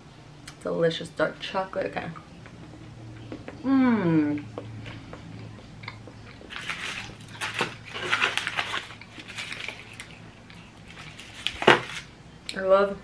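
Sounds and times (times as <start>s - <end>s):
chewing crunchy chocolate: 4.8s - 12.0s
wrapper crinkling: 6.5s - 12.1s.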